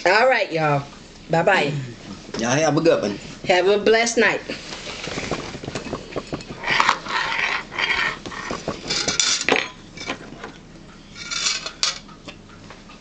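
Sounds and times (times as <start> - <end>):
scraping and rustling: 4.5 - 10.4
spoon and dishes clinking: 11.2 - 12.1.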